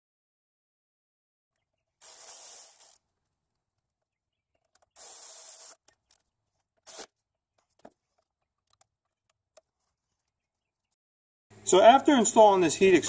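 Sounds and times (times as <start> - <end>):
electric ratchet whirring: 2.0 - 3.0, 4.9 - 6.2, 6.8 - 7.1
tool and parts clicking: 2.0 - 3.0.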